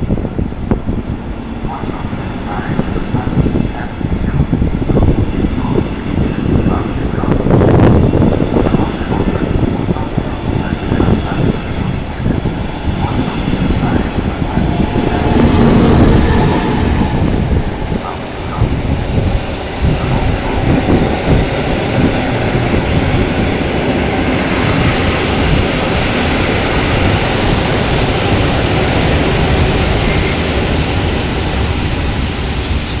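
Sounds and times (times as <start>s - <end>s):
train wheels rumbling on rails: 0.0s - 33.0s
high wheel squeal: 29.5s - 33.0s.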